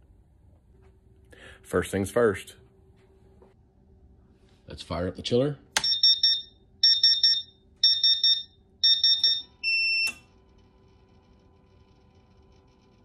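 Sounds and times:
alarm buzzer beeping: 5.8s - 10.3s.

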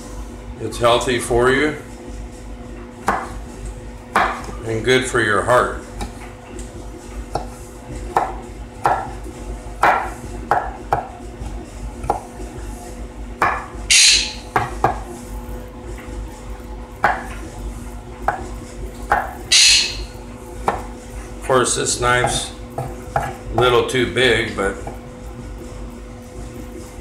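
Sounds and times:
knife chopping on wooden board: 3.0s - 3.4s, 7.3s - 9.2s, 9.8s - 11.1s, 12.0s - 12.3s, 13.4s - 13.7s, 22.2s - 23.7s.

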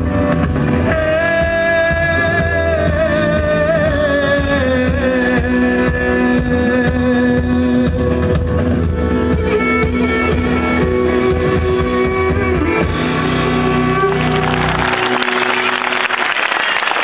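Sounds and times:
live band with guitar: 0.0s - 17.0s
audience applause: 13.9s - 17.0s.

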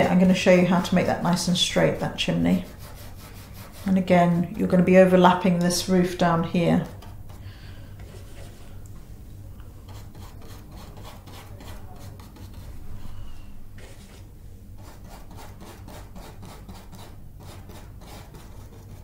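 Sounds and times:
paint worked on palette: 0.0s - 8.9s, 9.5s - 19.0s
low steady hum: 0.0s - 19.0s
paintbrush scratching on canvas: 1.9s - 4.5s, 9.9s - 12.8s, 13.8s - 19.0s.

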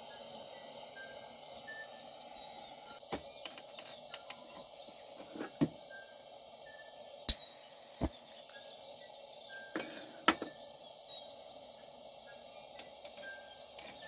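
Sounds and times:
camp stove igniter clicks: 3.0s - 4.7s, 7.2s - 8.6s.

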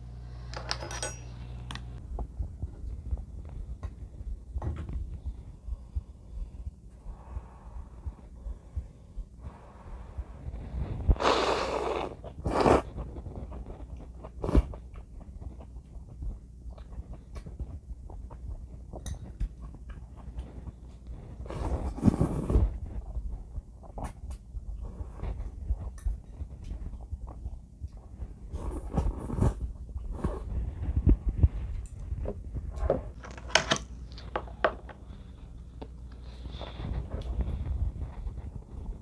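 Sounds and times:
low steady hum: 0.0s - 39.0s
slurping noodles: 11.1s - 13.0s.

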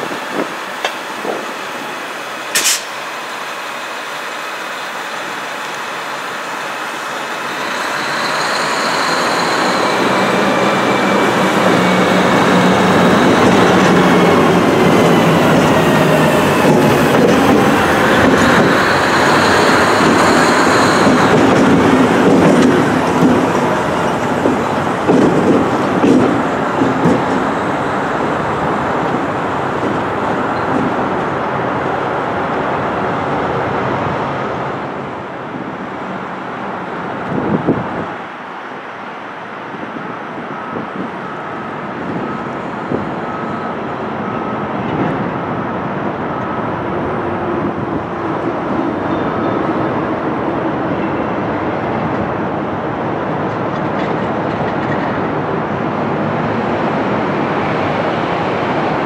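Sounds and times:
diesel locomotive rumbling: 0.0s - 59.0s.

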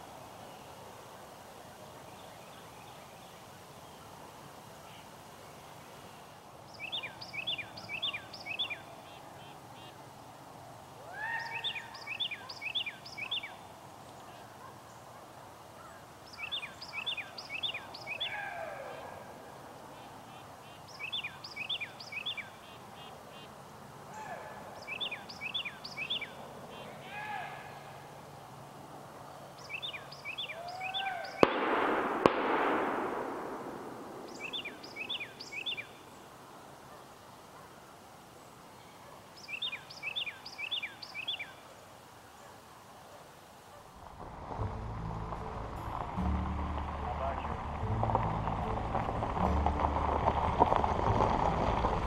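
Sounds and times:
outdoor background noise: 0.0s - 52.0s
lower falling bird calls: 4.8s - 10.0s, 11.0s - 15.1s, 15.8s - 28.1s, 29.6s - 37.2s, 37.8s - 42.4s
songbird whistling falling notes: 29.7s - 31.6s, 34.2s - 36.0s.

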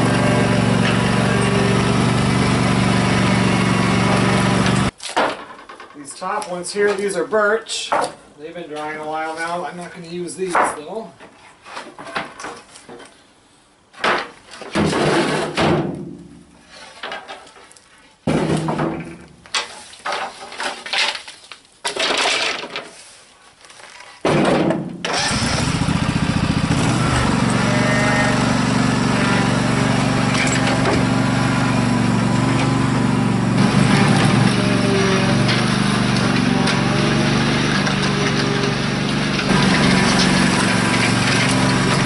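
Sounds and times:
lawn tractor engine running: 0.0s - 5.0s, 25.1s - 42.0s
wooden boards knocking together: 4.6s - 6.0s, 14.0s - 16.3s, 18.3s - 23.0s, 24.2s - 25.0s.

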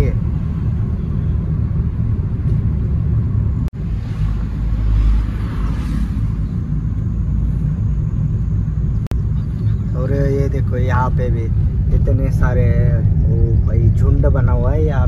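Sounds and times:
rushing noise: 0.0s - 9.4s
car engine and tyre rumble: 0.0s - 15.0s.

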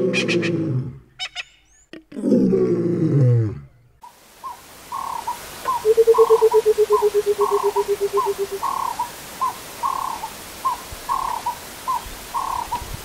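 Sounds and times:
bird bubbling hooting call: 4.0s - 12.8s
faint high bird calls: 4.0s - 13.0s.

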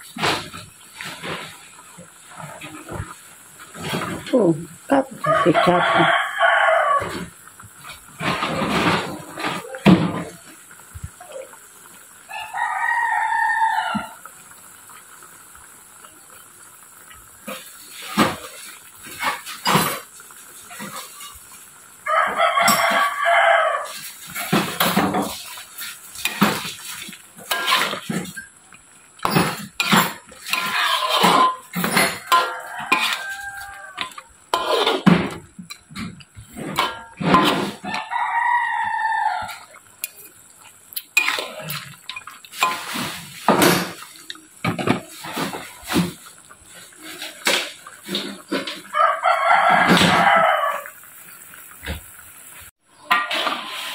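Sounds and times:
rooster crowing: 5.2s - 7.3s, 12.3s - 14.3s, 22.0s - 24.0s, 31.9s - 34.2s, 37.0s - 39.8s, 48.9s - 51.0s
spatula scraping a metal wok: 17.5s - 21.5s, 22.6s - 28.4s, 29.2s - 38.2s, 41.2s - 46.2s, 53.1s - 53.9s.

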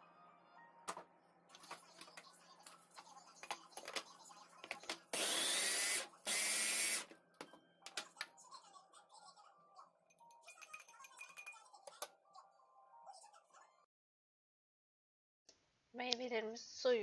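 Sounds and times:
food chopper motor whine: 5.1s - 7.1s.

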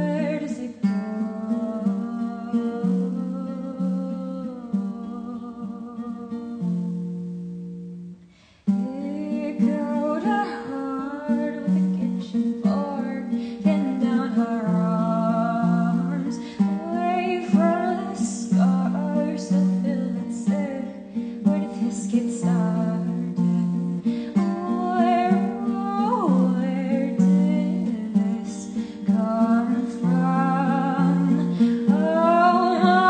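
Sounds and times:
person singing: 0.0s - 7.2s, 8.6s - 33.0s
acoustic guitar strumming: 0.0s - 33.0s.

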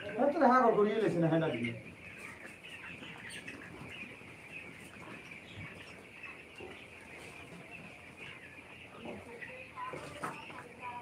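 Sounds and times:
chicks cheeping: 0.0s - 11.0s.

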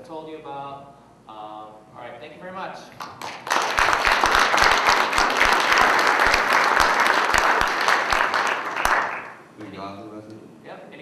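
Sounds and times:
audience applauding: 3.0s - 9.4s.

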